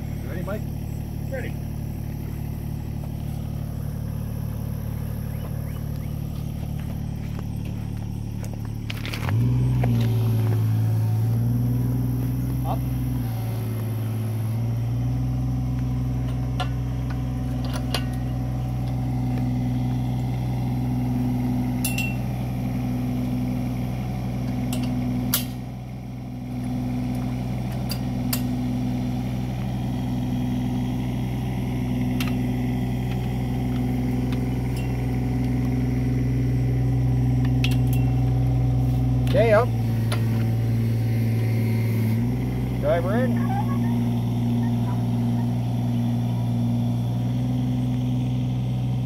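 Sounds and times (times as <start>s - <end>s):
diesel engine running: 0.0s - 49.0s
metallic clinks: 21.8s - 22.3s, 37.6s - 38.3s.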